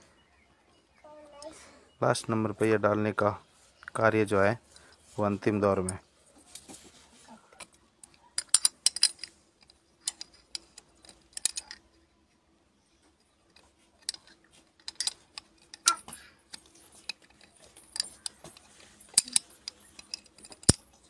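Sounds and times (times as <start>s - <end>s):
metal rod clinking on glass bottle: 14.8s - 21.0s.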